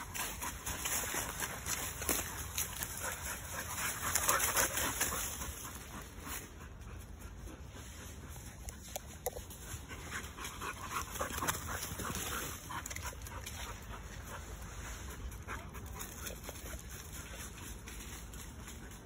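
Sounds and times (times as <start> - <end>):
dog panting: 0.0 - 19.0
paws rustling through dry leaves: 0.0 - 19.0.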